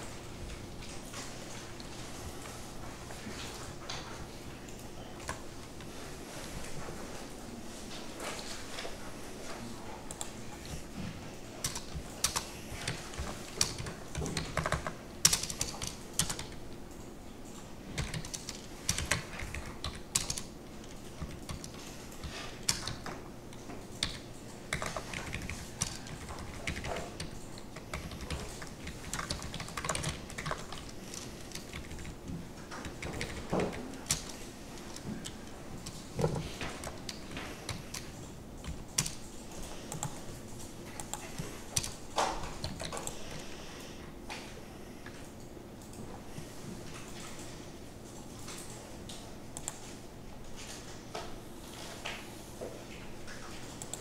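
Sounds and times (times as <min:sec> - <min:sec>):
typing on computer keyboard: 0:11.6 - 0:43.5, 0:48.0 - 0:50.0, 0:53.4 - 0:54.0.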